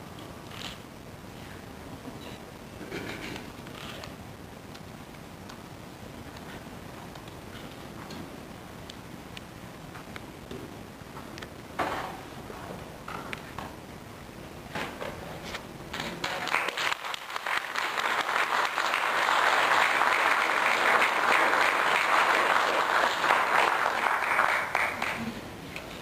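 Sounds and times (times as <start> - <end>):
audience applauding: 16.0 - 25.5.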